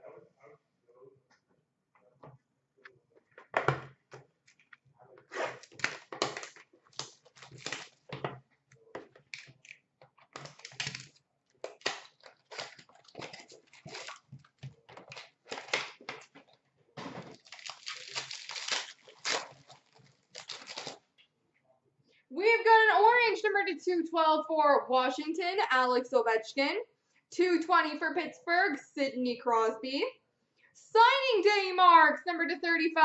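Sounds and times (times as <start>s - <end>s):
wrapper tearing and crinkling: 5.4s - 8.1s, 10.4s - 16.4s, 17.1s - 21.0s
cards rustling: 5.4s - 8.2s, 9.2s - 16.5s, 17.1s - 21.0s.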